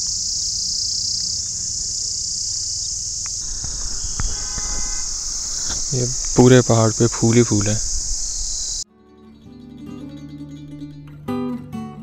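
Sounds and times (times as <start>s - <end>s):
insects shrilling: 0.0s - 8.8s
short thump: 3.4s - 8.8s.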